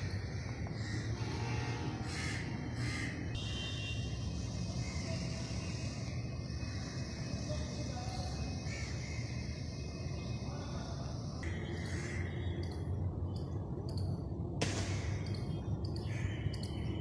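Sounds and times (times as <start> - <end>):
crows cawing: 0.0 - 3.4, 4.6 - 7.8, 8.4 - 9.8, 11.5 - 12.6, 14.7 - 15.4, 16.0 - 16.9
low outdoor rumble: 0.0 - 17.0.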